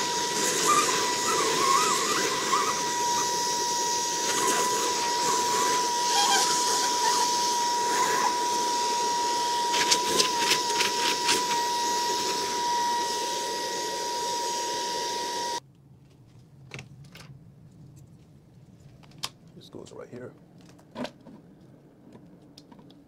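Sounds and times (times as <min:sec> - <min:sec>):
handheld vacuum whining: 0:00.0 - 0:15.6.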